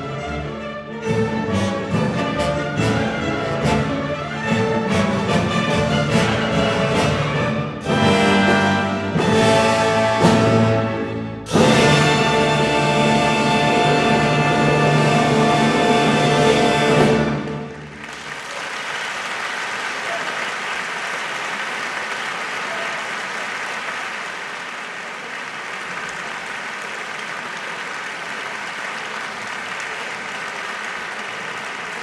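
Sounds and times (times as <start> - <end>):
audience applauding: 17.2 - 32.0.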